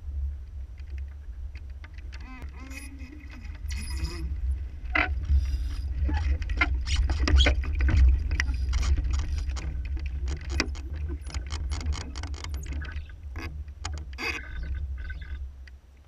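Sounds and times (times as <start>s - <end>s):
water splashing along hull: 0.0s - 16.0s
wind rumbling on microphone: 0.0s - 16.0s
boat clicks and knocks: 5.9s - 14.9s.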